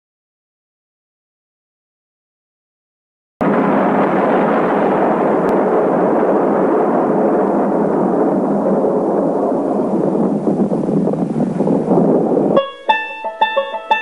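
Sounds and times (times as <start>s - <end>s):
explosion rumble: 3.4s - 14.0s.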